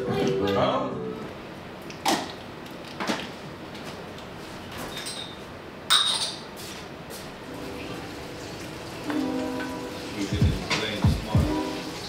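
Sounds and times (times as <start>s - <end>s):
metal cookware clinking: 5.0s - 6.5s.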